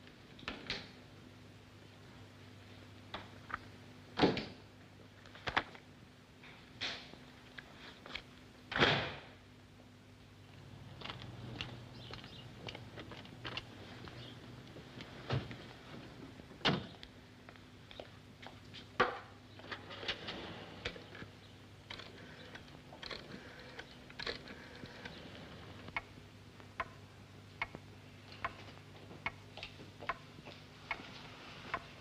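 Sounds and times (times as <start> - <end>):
faint steady hum: 0.0 - 32.0
wall clock ticking: 25.9 - 26.1, 26.7 - 27.0, 28.4 - 29.4, 31.7 - 32.0.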